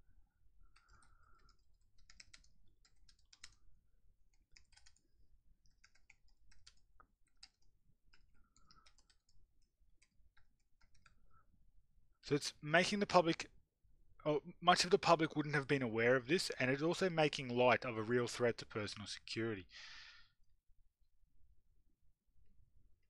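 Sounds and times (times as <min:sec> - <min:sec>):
typing on computer keyboard: 0:00.6 - 0:11.2.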